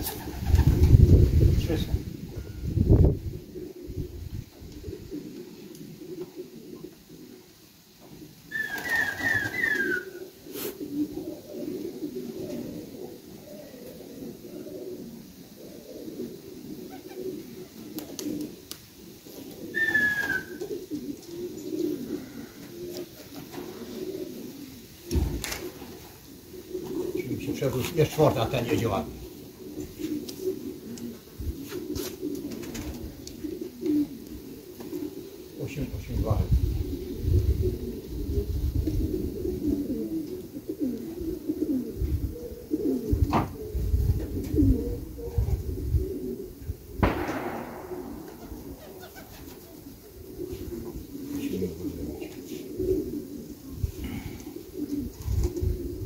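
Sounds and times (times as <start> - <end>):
pigeons cooing: 0.0 - 56.0
low gusty rumbles: 0.4 - 4.5, 47.0 - 49.0.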